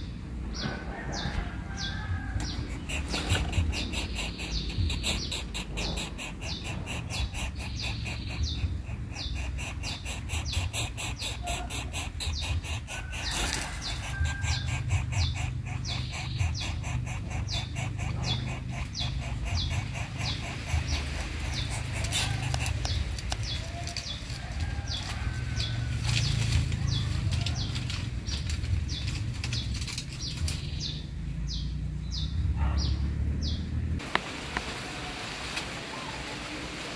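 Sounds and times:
steady low rumble: 0:00.0 - 0:32.6
bird rustling dry leaves: 0:01.0 - 0:30.8
fast high repeated chirping: 0:02.6 - 0:23.1.

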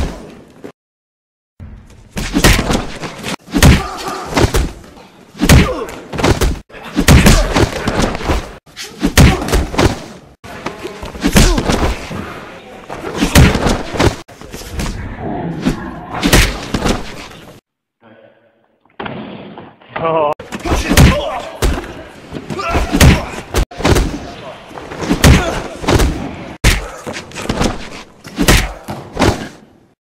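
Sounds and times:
fight thuds and slams: 0:02.1 - 0:10.2, 0:11.1 - 0:12.2, 0:13.0 - 0:14.2, 0:15.6 - 0:17.6, 0:20.4 - 0:24.3, 0:24.9 - 0:29.6.

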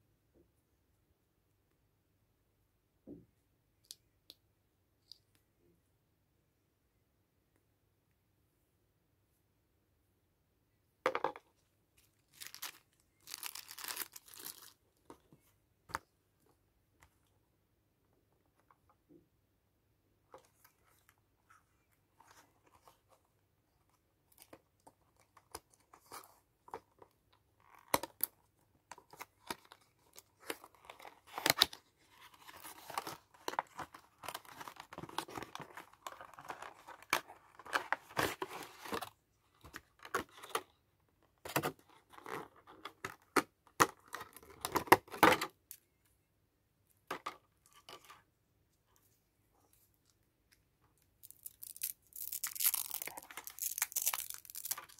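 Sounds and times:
packaging rustling and crinkling: 0:12.2 - 0:14.8.

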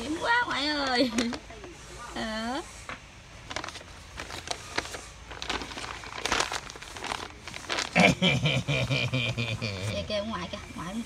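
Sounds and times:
crinkly material rustling: 0:03.4 - 0:08.3.

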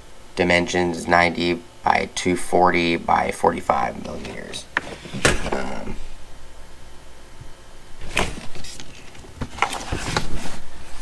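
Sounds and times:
cardboard scraping on plastic case: 0:04.1 - 0:05.6, 0:08.0 - 0:10.6.

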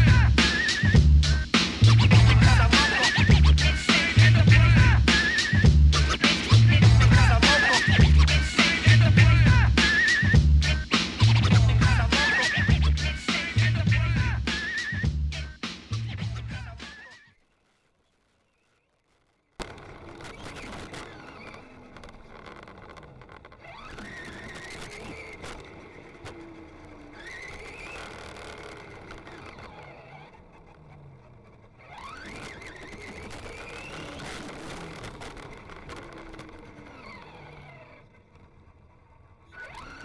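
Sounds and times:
tyres on asphalt: 0:00.0 - 0:40.0
electric motor whine: 0:19.6 - 0:40.0.

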